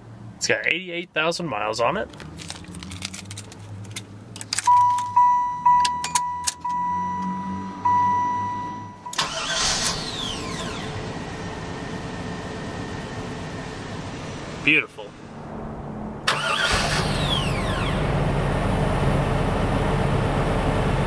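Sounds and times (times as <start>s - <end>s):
car warning chime: 4.7s - 9.6s
low steady hum: 10.4s - 19.0s
rush of noise: 15.0s - 18.3s.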